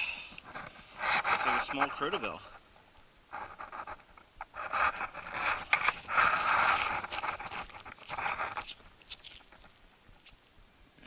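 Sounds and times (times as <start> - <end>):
soil scraping and crumbling: 0.5 - 2.6, 4.6 - 10.5.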